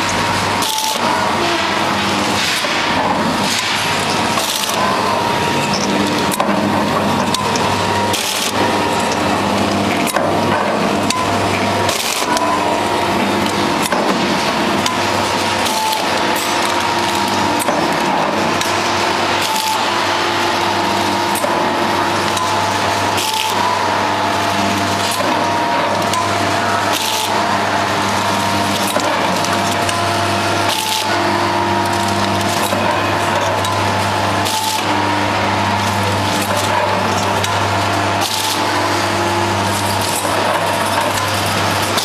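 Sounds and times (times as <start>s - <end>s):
packaging machine hum and whine: 0.0s - 42.0s
machine clicks: 26.9s - 27.4s.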